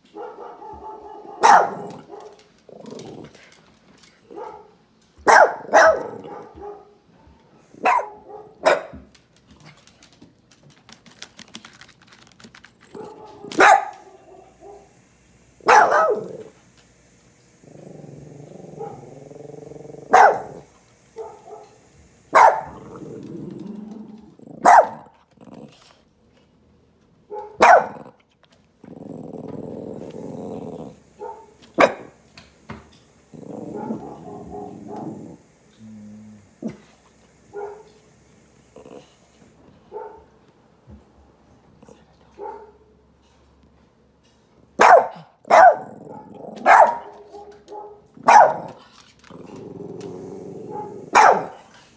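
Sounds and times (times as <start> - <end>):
dog barking: 0.0 - 2.4, 4.3 - 7.0, 7.7 - 9.0, 12.9 - 14.9, 15.6 - 16.5, 18.7 - 19.2, 20.0 - 23.0, 24.5 - 25.2, 27.3 - 28.2, 31.2 - 32.2, 33.5 - 35.2, 37.5 - 38.0, 39.9 - 40.4, 42.3 - 42.9, 44.8 - 48.8, 50.7 - 51.7
dog growling: 1.3 - 2.1, 2.7 - 3.7, 15.9 - 16.6, 17.6 - 20.7, 22.6 - 26.0, 28.8 - 32.1, 33.2 - 37.2, 38.6 - 39.5, 45.7 - 47.0, 48.5 - 51.9.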